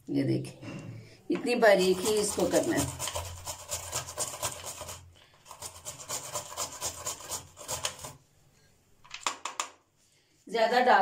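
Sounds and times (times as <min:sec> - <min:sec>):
carrot rasping on grater: 0:01.8 - 0:08.2.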